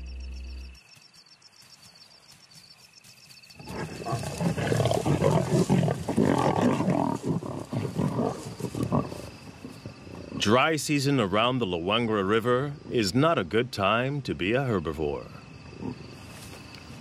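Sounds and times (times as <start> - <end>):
faint insects: 0.0 - 17.0
lions growling and snarling: 3.6 - 10.7.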